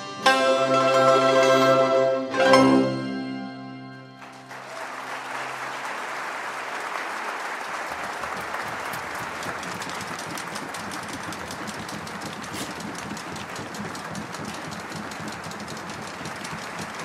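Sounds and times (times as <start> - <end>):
audience applause: 4.2 - 17.0.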